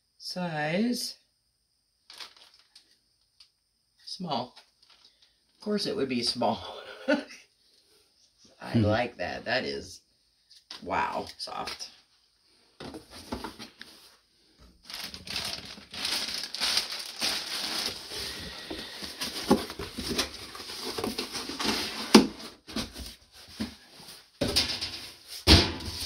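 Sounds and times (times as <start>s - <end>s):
packaging and clothing rustling: 2.1s - 2.9s, 14.8s - 26.0s.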